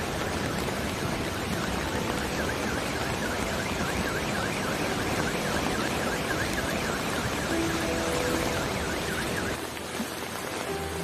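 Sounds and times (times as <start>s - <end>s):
floodwater rushing: 0.0s - 11.0s
car alarm warbling: 1.5s - 9.7s.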